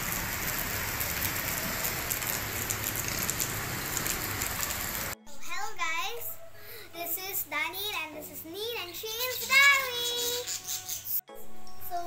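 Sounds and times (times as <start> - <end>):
sharp raindrop hits: 0.0 - 5.2
steady rain hiss: 0.0 - 5.2.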